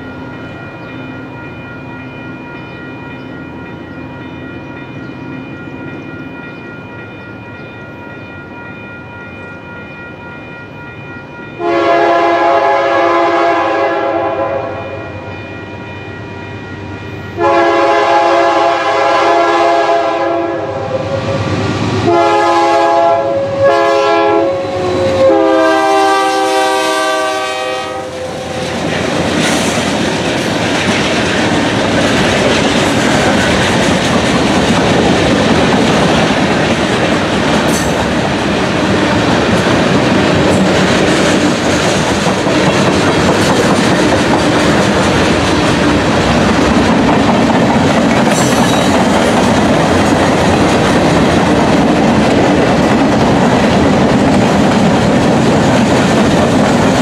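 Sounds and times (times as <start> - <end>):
train passing: 0.0 - 57.0
train air horn blasts: 11.6 - 15.2, 17.3 - 28.8.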